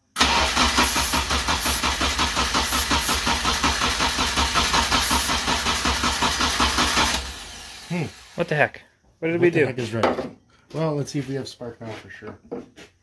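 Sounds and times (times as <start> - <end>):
engine cranking on starter: 0.1 - 8.4
spray can hissing: 0.9 - 1.8, 2.6 - 3.2, 5.0 - 5.4.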